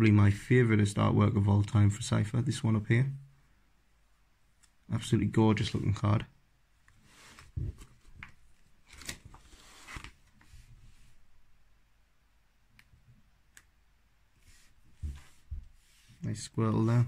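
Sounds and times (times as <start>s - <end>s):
plastic pages crinkling: 7.3s - 10.4s.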